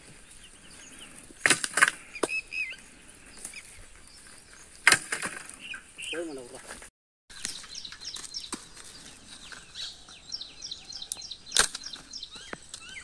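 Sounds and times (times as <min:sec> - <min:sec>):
dry branches cracking: 0:01.0 - 0:10.2, 0:11.1 - 0:12.9
faint bird chirps: 0:02.1 - 0:04.7, 0:07.4 - 0:13.0.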